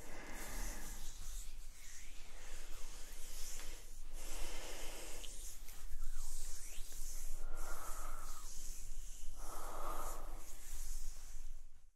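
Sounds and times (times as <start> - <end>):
woman breathing: 0.0 - 1.5, 2.3 - 5.8, 7.2 - 11.6.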